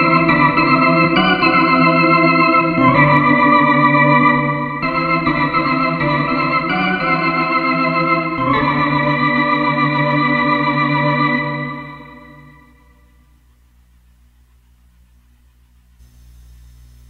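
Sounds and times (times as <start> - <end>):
held organ chords: 0.0 - 13.5.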